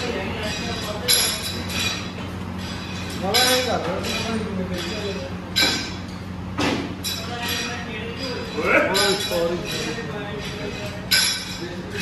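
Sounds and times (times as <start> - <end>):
metal dumbbell plates clinking: 7.0 - 12.0.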